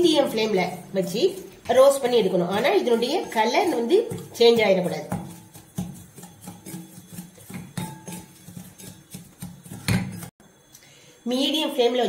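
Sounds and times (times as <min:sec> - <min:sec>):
spatula scraping metal pan: 0:02.2 - 0:10.3.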